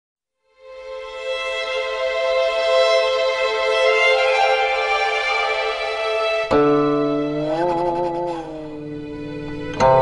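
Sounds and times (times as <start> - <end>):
bowed string instrument held notes: 0.6 - 10.0.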